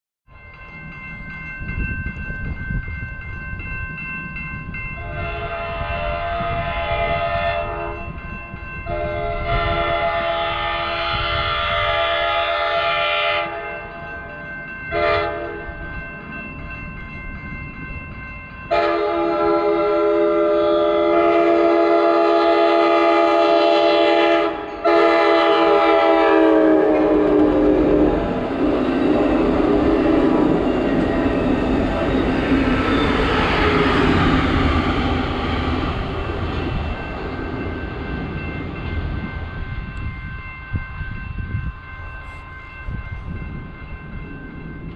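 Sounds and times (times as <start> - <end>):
crossing bells ringing: 0.3 - 44.9
train rumble: 0.3 - 44.9
train horn blasts: 5.0 - 8.1, 8.8 - 14.0, 14.9 - 15.7, 18.7 - 30.6.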